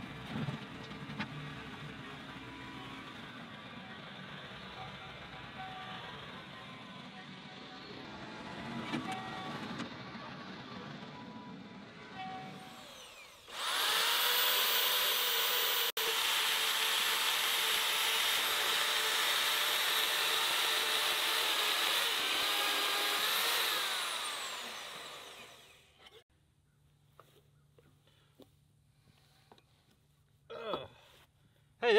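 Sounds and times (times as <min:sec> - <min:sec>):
band saw cutting steel pipe: 0:12.4 - 0:26.2.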